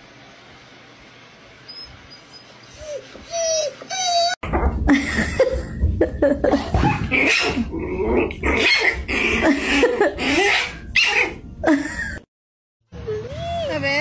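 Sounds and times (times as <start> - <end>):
dog growling and grunting: 6.5 - 11.4.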